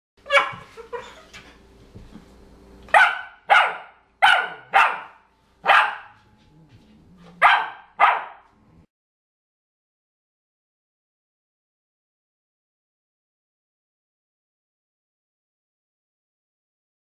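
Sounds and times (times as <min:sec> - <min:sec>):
puppy yapping: 0:00.2 - 0:01.2, 0:02.9 - 0:06.2, 0:07.2 - 0:08.5.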